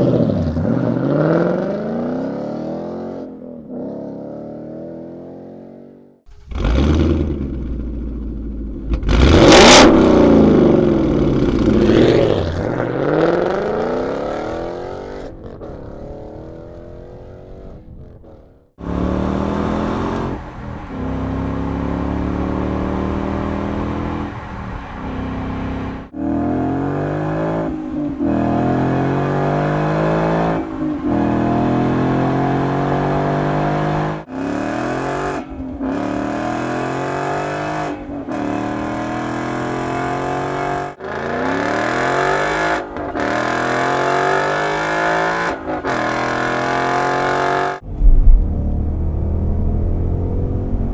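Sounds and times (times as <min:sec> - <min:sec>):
car engine accelerating hard: 0:06.3 - 0:50.9.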